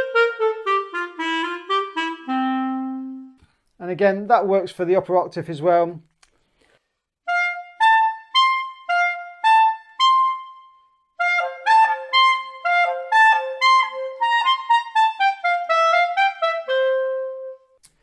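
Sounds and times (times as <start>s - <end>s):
clarinet melody: 0.0s - 3.4s, 7.2s - 17.8s.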